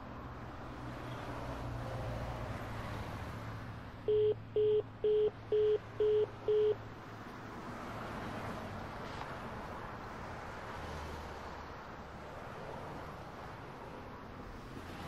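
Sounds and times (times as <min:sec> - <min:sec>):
phone call beeps: 0:04.1 - 0:06.8.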